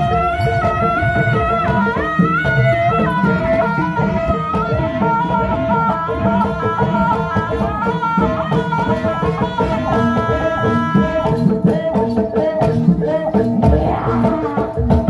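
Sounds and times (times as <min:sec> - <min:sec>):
gongs melody: 0:00.0 - 0:11.8
drums beating: 0:00.0 - 0:15.0.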